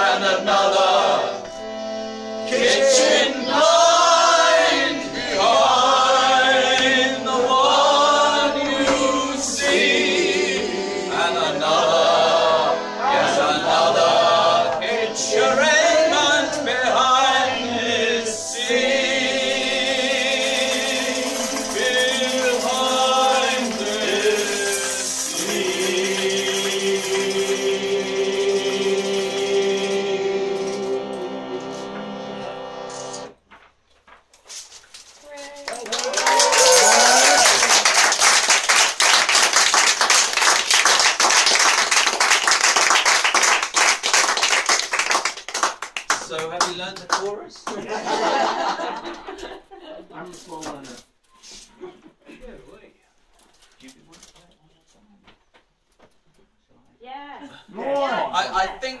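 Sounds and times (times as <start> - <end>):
person singing pop song: 19.6 - 31.0
audience clapping: 20.4 - 27.5, 35.7 - 48.2.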